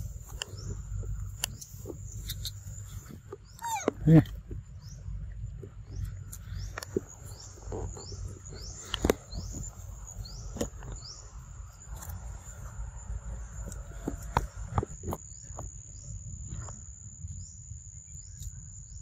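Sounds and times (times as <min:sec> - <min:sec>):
high insect whine: 0:06.0 - 0:19.0.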